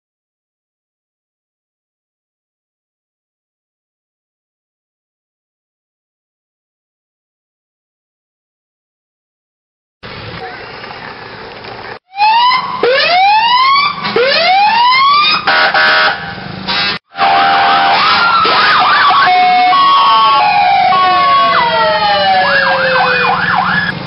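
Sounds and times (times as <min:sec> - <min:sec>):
fire truck sirens wailing: 0:12.1 - 0:24.0
fire truck horn blasts: 0:13.8 - 0:20.4.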